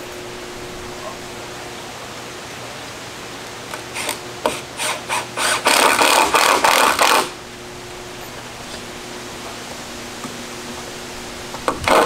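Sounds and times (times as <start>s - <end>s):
hand tool rasping wood: 4.0s - 7.3s.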